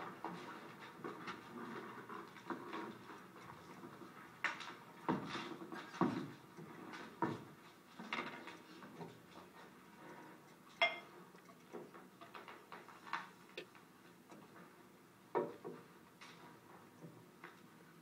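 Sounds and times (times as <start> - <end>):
glass bottle and glass knocking: 10.8 - 11.1.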